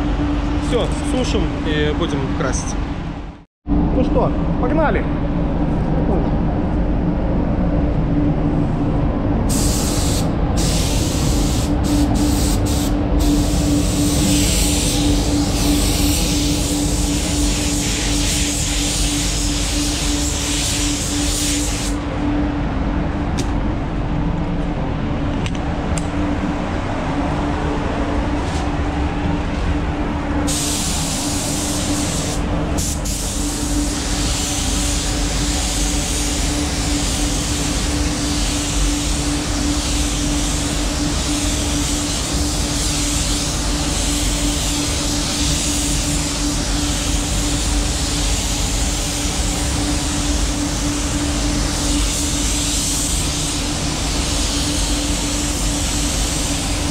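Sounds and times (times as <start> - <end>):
ventilation hum: 0.0 - 56.9
spray gun hissing: 9.5 - 22.0, 30.5 - 56.9.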